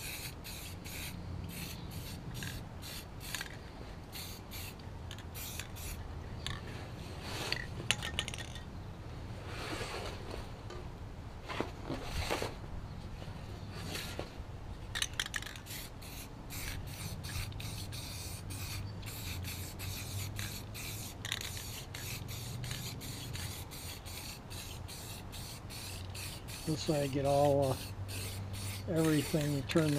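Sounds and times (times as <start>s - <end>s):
spray paint can hissing: 0.0s - 6.6s, 14.9s - 29.9s
scraping and rubbing of mower deck: 9.4s - 10.8s, 13.2s - 14.4s.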